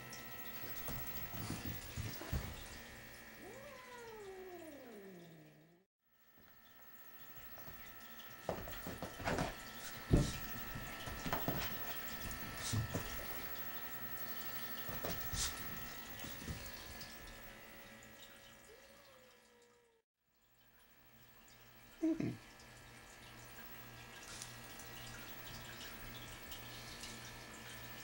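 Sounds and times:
puppy paws scrabbling on sofa: 0.7s - 2.9s, 8.5s - 13.5s, 14.9s - 17.0s.

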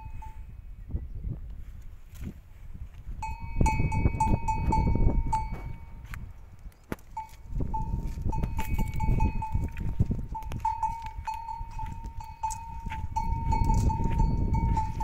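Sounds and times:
camel bell ringing: 0.0s - 0.6s, 3.2s - 6.0s, 7.2s - 15.0s.

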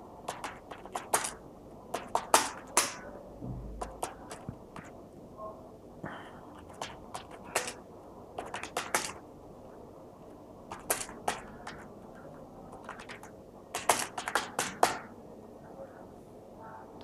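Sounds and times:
keyboard and mouse clicking: 0.3s - 3.0s, 6.6s - 7.8s, 8.4s - 9.2s, 10.7s - 11.9s, 12.7s - 15.1s.

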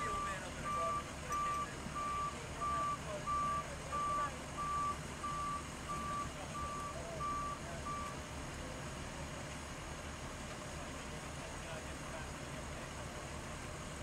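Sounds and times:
backup alarm beeping: 0.0s - 8.2s
low vehicle rumble: 0.0s - 14.0s.

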